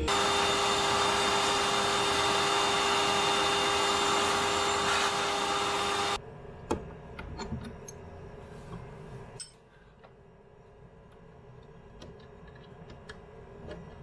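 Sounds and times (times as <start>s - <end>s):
vacuum whining: 0.0s - 6.2s.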